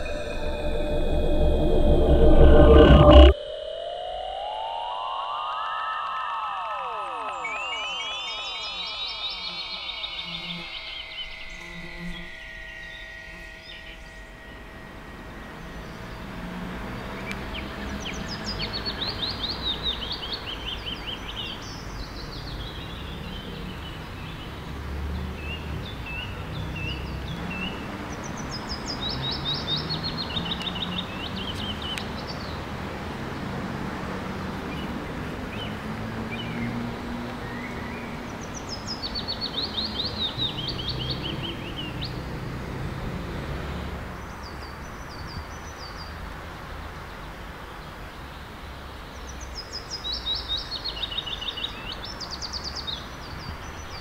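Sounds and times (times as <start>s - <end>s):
synthesized tone gliding down: 0.0s - 21.6s
songbirds singing: 7.2s - 14.2s, 34.4s - 42.9s, 44.2s - 54.0s.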